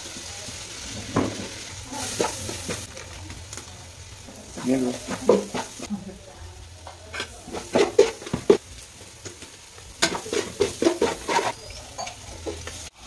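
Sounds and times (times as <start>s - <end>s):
frying sizzle: 0.0s - 13.0s
metal spatula scraping pot: 7.1s - 8.6s, 10.0s - 12.8s.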